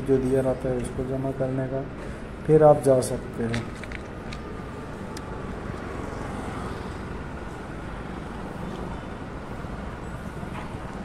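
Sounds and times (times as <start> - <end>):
outdoor low rumble with hiss: 0.0 - 11.0.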